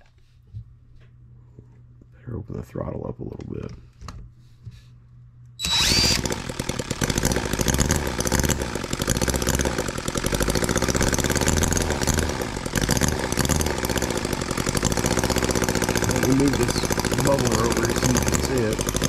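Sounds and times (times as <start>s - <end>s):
model engine running: 5.6s - 19.0s.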